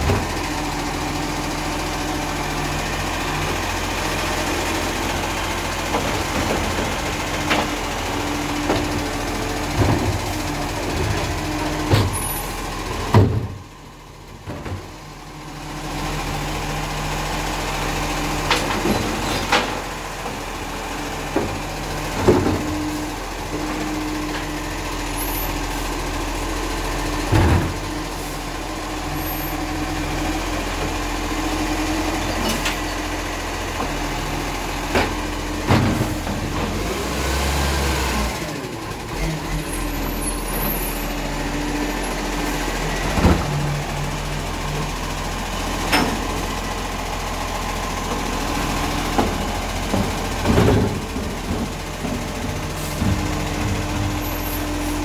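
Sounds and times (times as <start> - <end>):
truck engine and hydraulic pump hum: 0.0 - 55.0
wheelie bins clunking: 3.0 - 15.1, 18.3 - 25.1, 29.7 - 37.2, 39.0 - 55.0.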